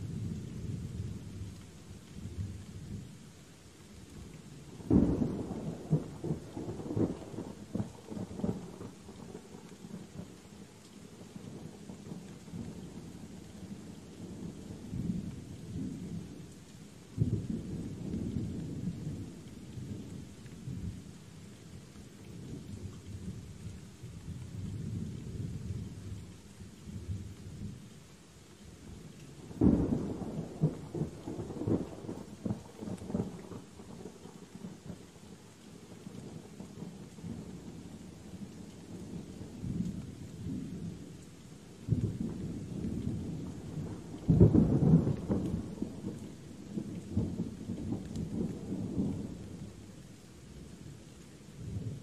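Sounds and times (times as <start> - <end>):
steady rain: 0.0 - 52.0
thunder rumbling: 29.4 - 35.0, 41.9 - 49.6.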